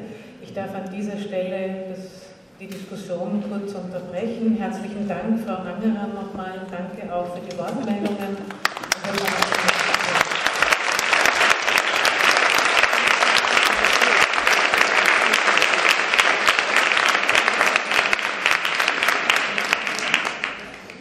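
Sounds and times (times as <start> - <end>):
audience applauding: 8.5 - 21.0.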